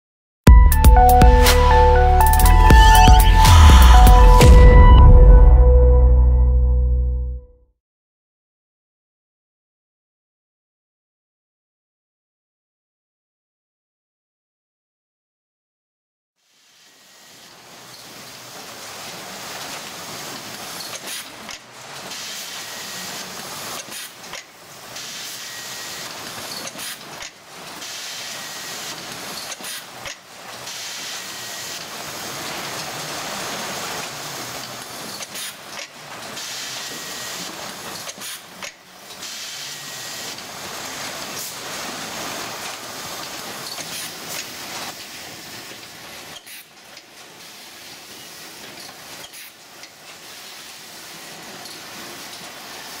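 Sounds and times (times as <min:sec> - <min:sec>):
machinery and compressed air hiss: 0:16.5 - 0:53.0.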